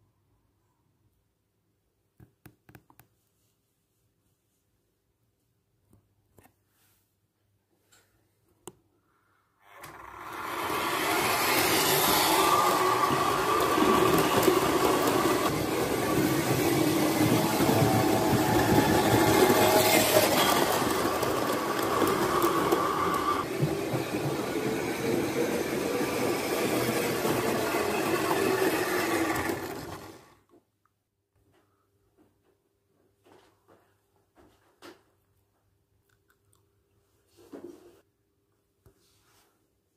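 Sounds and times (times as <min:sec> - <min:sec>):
model steam locomotive running: 0:09.7 - 0:30.3.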